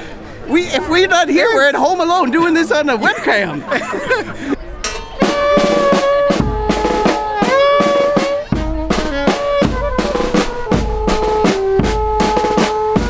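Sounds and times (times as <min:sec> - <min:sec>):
bass drum and snare drum beats: 0:04.9 - 0:13.0
saxophone melody: 0:05.2 - 0:13.0.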